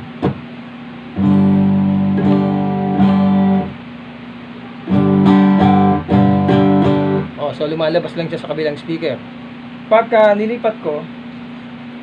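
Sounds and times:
guitar strumming through speaker: 0:01.2 - 0:03.8, 0:04.7 - 0:07.4.

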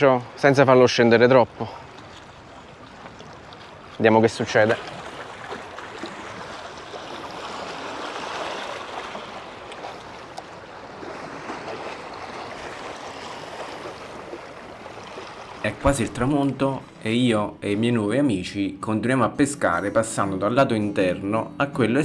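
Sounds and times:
waves washing against rocks: 0:00.0 - 0:16.6.

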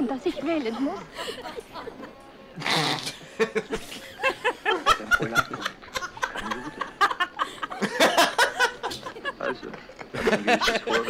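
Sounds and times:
canned laughter: 0:03.0 - 0:11.0.

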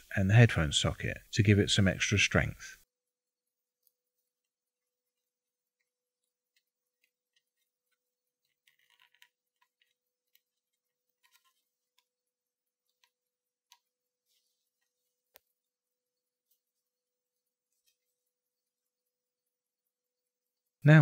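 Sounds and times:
fingers rustling parts: 0:03.8 - 0:19.1
small plastic clicks: 0:06.5 - 0:10.5.

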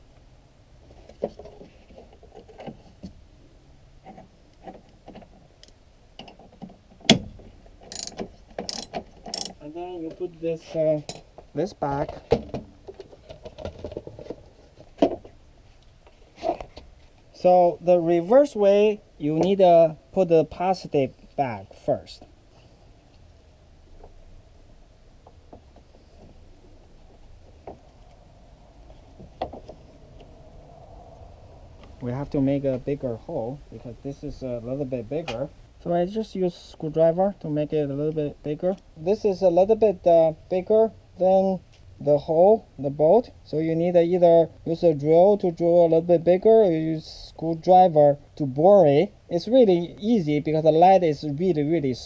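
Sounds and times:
low steady rumble: 0:00.0 - 0:52.0
metal-on-metal rattles: 0:06.2 - 0:09.6
wrench clicks and taps: 0:07.9 - 0:09.6.

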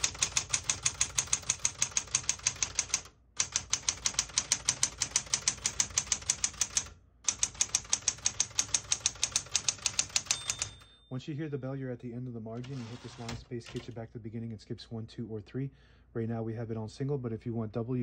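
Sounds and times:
manual typewriter typing: 0:00.0 - 0:10.9, 0:12.6 - 0:14.0.

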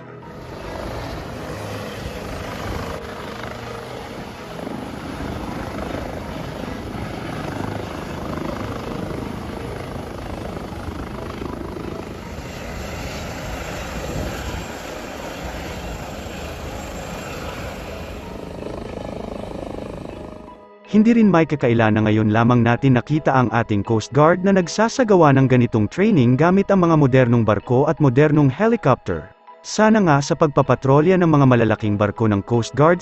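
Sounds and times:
helicopter rotor and turbine engine: 0:00.0 - 0:20.6.

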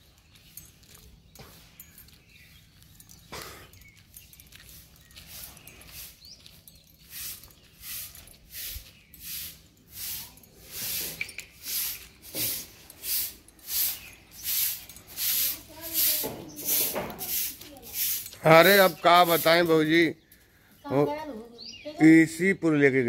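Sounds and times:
heavy rhythmic breathing: 0:03.0 - 0:06.2.

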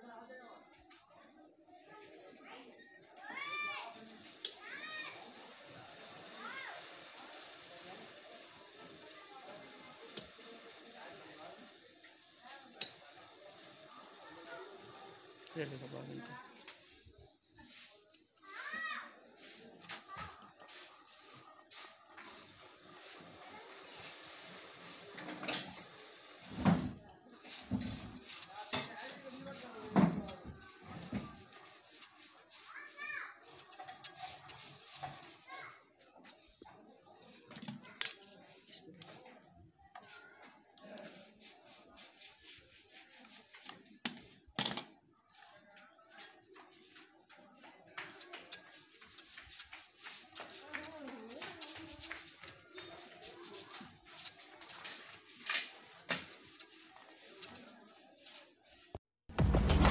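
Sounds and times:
background voices with children: 0:00.0 - 0:59.0
soft rubbing of thread: 0:13.4 - 0:25.7, 0:26.4 - 0:44.4, 0:45.2 - 0:59.0
loud bump: 0:59.3 - 0:59.9.

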